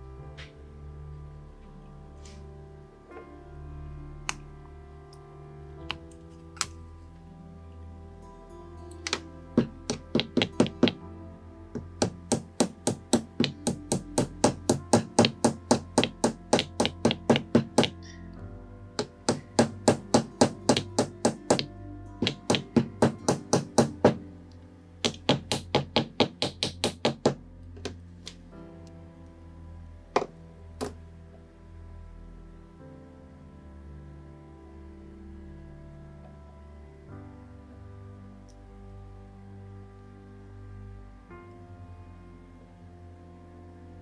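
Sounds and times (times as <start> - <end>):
background music: 0.0 - 44.0
small hammer tapping on metal: 9.1 - 11.0, 11.8 - 18.0, 19.0 - 24.2.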